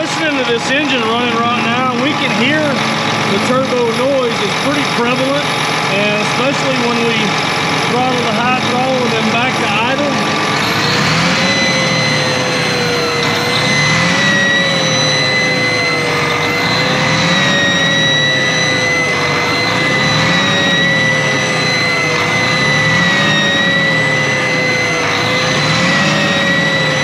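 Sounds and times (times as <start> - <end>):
diesel engine running: 0.0 - 27.0
high-pitched turbo whistle: 8.0 - 27.0.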